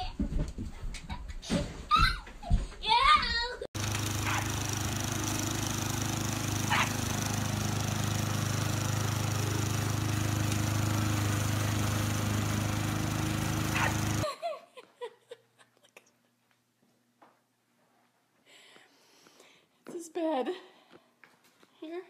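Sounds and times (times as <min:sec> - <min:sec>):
lawn mower engine running: 0:03.8 - 0:14.2.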